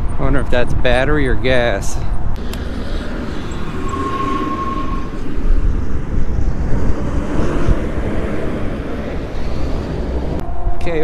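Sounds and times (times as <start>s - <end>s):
road traffic passing: 0.0s - 11.0s
wind rumble on microphone: 0.0s - 11.0s
thin steady whine: 2.4s - 8.0s.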